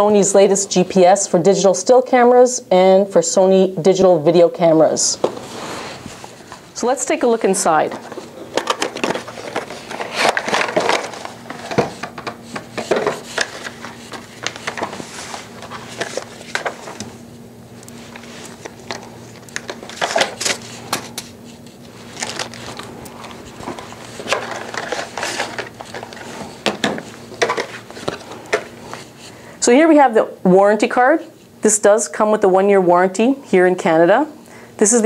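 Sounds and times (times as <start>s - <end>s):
faint steady hum: 0.0s - 35.0s
paper and plastic rustling: 5.2s - 17.2s, 17.9s - 29.3s.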